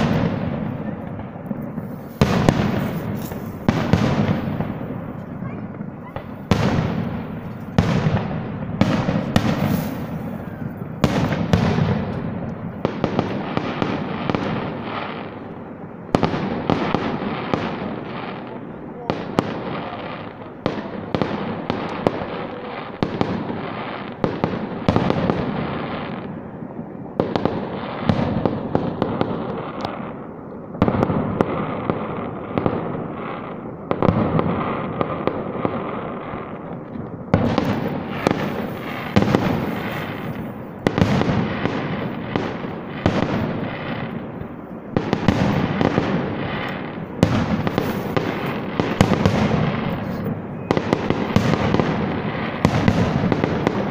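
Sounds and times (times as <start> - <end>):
fireworks bangs and crackling: 0.0 - 53.9.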